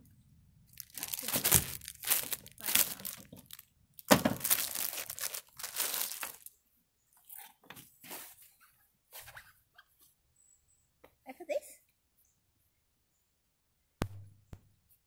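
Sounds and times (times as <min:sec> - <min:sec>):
plastic packaging crinkling: 0:00.7 - 0:06.5
fabric hat rustling: 0:00.8 - 0:03.6, 0:04.3 - 0:06.5.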